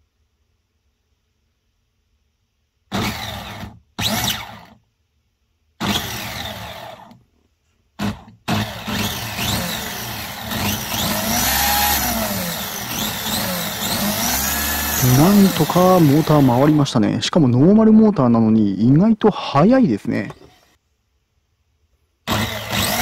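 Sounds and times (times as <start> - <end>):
electric motor whining: 2.9 - 4.8, 5.8 - 7.2, 8.0 - 16.9, 22.3 - 23.0.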